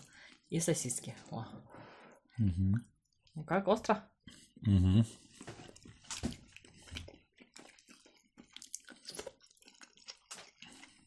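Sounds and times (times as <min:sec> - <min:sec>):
wet chewing clicks and smacks: 0:05.3 - 0:11.0.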